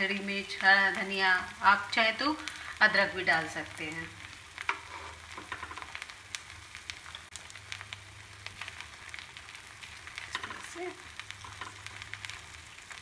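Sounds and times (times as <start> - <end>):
batter sizzling in pan: 0.0 - 13.0
wooden spatula scraping: 4.6 - 6.0.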